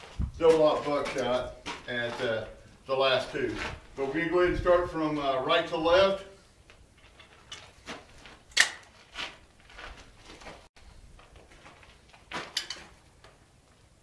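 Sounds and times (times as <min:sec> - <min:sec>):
shotgun clicks and knocks: 0:08.6 - 0:08.9.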